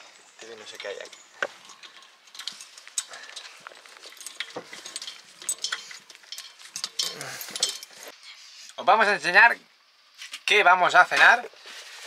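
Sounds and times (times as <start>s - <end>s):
metallic clicks and clinks: 0.4s - 8.1s.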